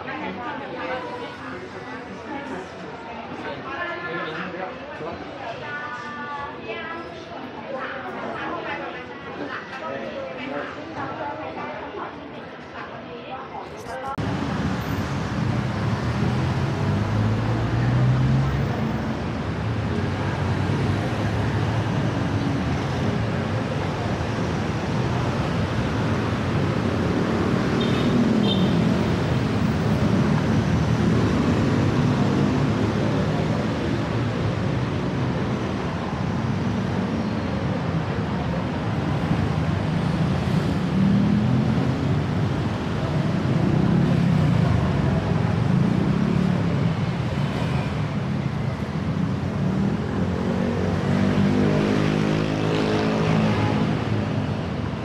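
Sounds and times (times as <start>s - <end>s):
steady traffic rumble: 10.4s - 55.0s
vehicles passing: 13.7s - 55.0s.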